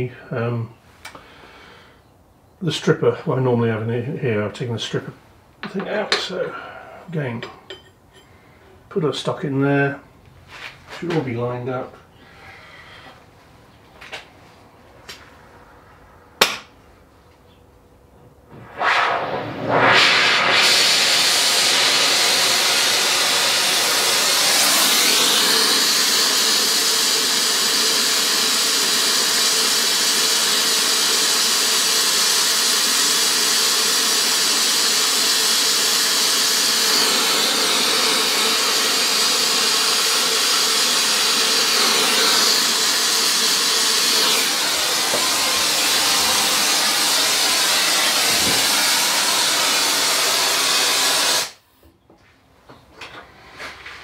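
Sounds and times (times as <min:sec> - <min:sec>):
gas torch hissing: 0:18.5 - 0:51.6.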